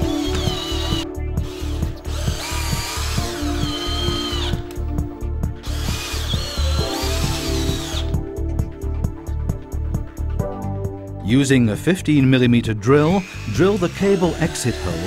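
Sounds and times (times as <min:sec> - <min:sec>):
cordless drill motor whine: 0:00.0 - 0:04.7, 0:05.6 - 0:08.1, 0:13.0 - 0:15.0
background music with steady beat: 0:00.0 - 0:15.0.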